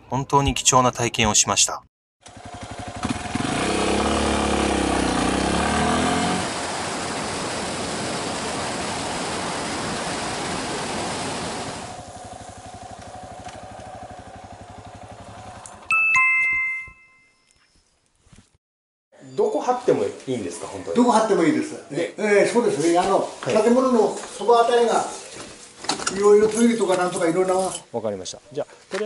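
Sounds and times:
motorcycle engine riding: 0:02.2 - 0:15.9
ringing ding: 0:15.9 - 0:17.7.

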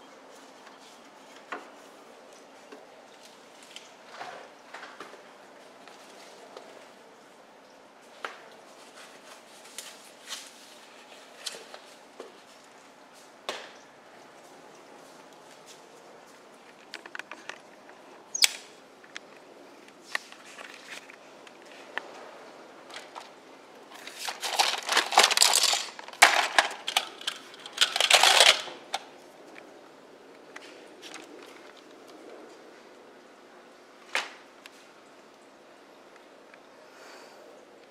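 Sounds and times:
plastic toys clattering in basket: 0:22.9 - 0:29.1.

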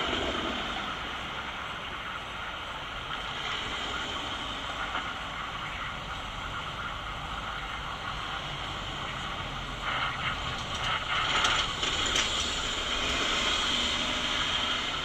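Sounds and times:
city street traffic hum: 0:00.0 - 0:15.0
mechanical clicks and whirs: 0:10.2 - 0:13.7.

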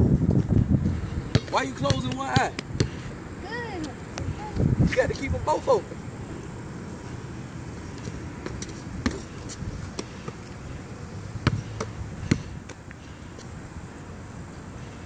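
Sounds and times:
basketball bouncing on asphalt: 0:00.2 - 0:04.0, 0:07.9 - 0:13.5.

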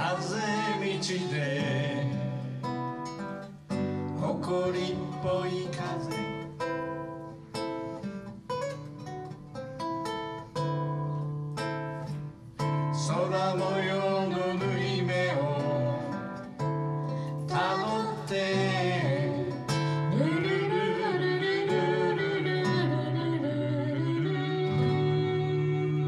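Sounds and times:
person singing: 0:00.0 - 0:03.1, 0:04.1 - 0:07.1, 0:12.8 - 0:26.0
acoustic guitar strumming chords: 0:00.0 - 0:26.0.

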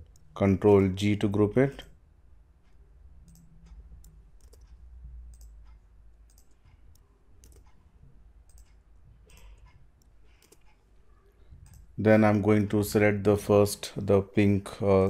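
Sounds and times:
computer mouse clicks: 0:03.2 - 0:10.9, 0:11.5 - 0:11.9
keyboard key presses: 0:06.3 - 0:07.8.

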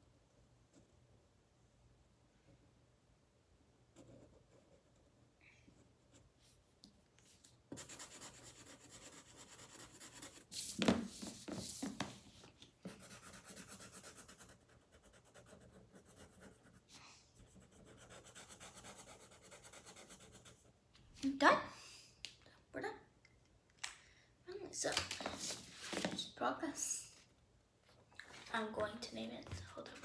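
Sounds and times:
marker scribbling on paper: 0:07.7 - 0:11.9, 0:12.9 - 0:20.7.

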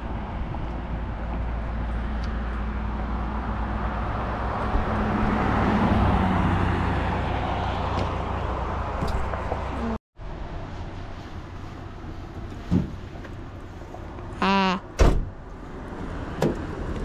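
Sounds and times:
steady low traffic hum: 0:00.0 - 0:17.0.

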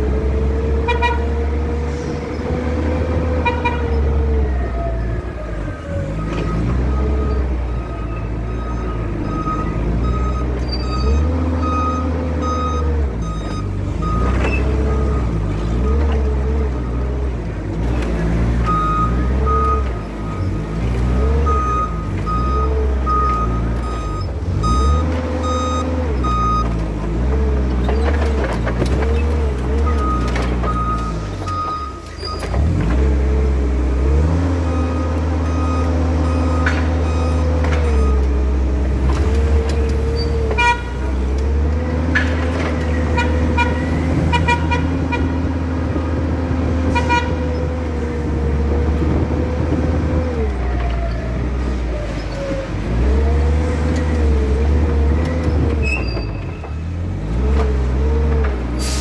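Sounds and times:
reversing alarm beeping: 0:04.6 - 0:16.0, 0:18.7 - 0:20.6, 0:21.4 - 0:26.8, 0:29.9 - 0:32.5, 0:34.7 - 0:38.3.

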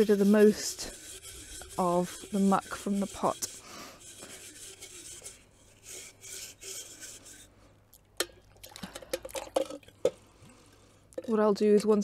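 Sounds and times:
cloth scrubbing pottery: 0:00.0 - 0:07.6
water splashing: 0:07.9 - 0:09.9.

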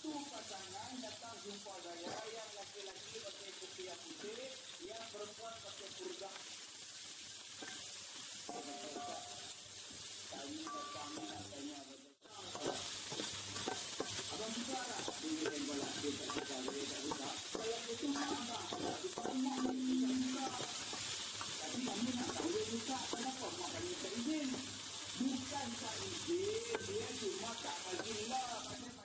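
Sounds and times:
food sizzling in a pan: 0:00.0 - 0:29.0.

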